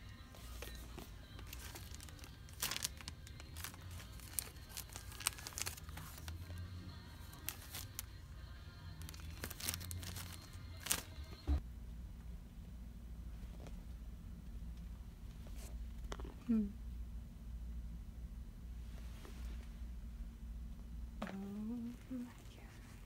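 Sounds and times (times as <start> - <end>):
background music: 0.0 - 11.6
plastic sleeves crinkling: 0.4 - 8.2, 9.0 - 11.5.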